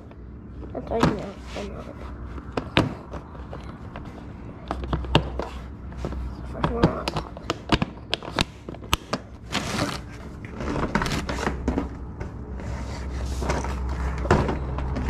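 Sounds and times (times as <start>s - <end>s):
plastic box clicks and knocks: 2.4s - 9.2s.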